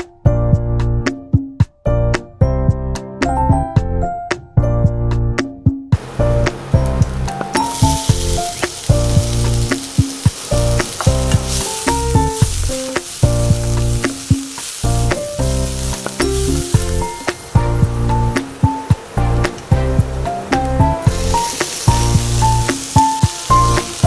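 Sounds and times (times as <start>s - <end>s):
background music: 0.0s - 24.0s
onion sizzling in hot oil: 6.0s - 24.0s
spatula stirring in frying pan: 7.4s - 19.1s.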